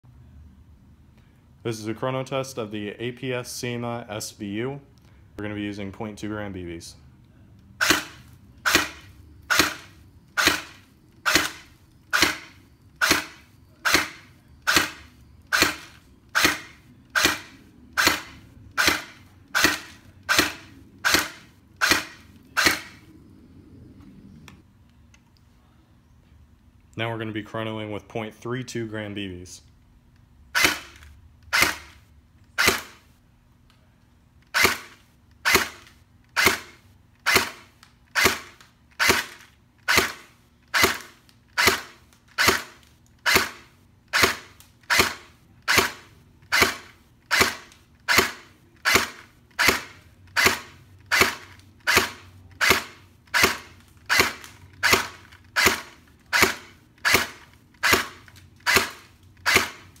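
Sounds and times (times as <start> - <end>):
airsoft rifle shots: 7.8 - 23.0, 30.6 - 32.0, 32.6 - 33.0, 34.5 - 59.9.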